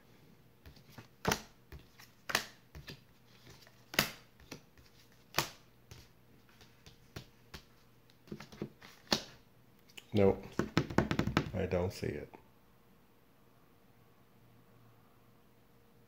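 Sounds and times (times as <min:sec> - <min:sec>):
card rustles: 0:00.7 - 0:09.4
cards slapping on table: 0:00.7 - 0:09.4, 0:10.4 - 0:11.6.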